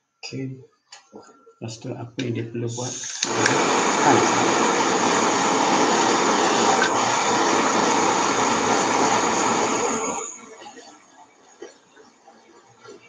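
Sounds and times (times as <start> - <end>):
gas torch hissing: 2.7 - 10.5.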